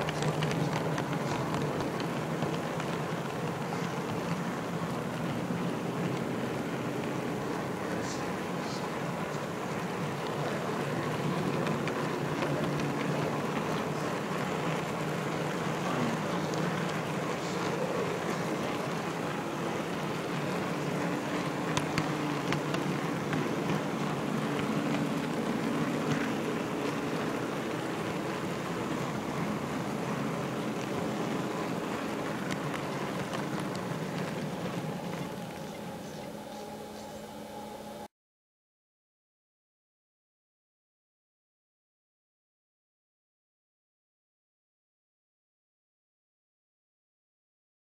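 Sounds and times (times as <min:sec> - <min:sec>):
model train rolling rumble: 0:00.0 - 0:38.0.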